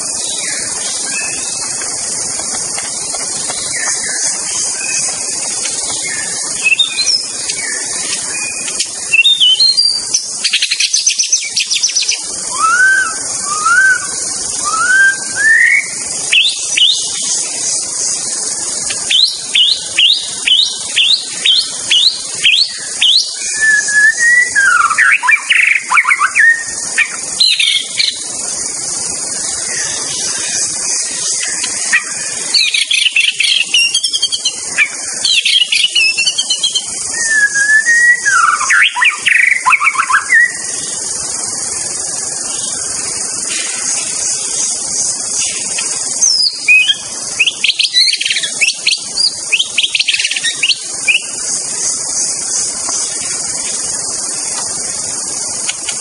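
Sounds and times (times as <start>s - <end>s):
steady high hiss: 0.0s - 56.0s
bird singing whistled phrases: 5.9s - 17.2s, 19.1s - 28.2s, 31.4s - 40.7s, 45.5s - 51.4s.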